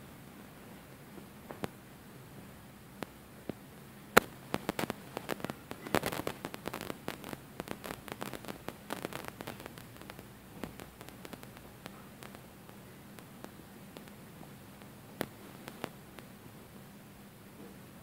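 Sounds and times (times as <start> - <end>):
sharp clicks and crackles: 3.0 - 3.6, 4.2 - 16.7.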